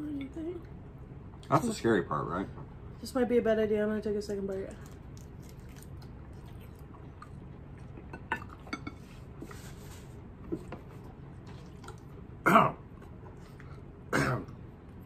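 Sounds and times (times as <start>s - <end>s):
person coughing: 14.1s - 14.5s.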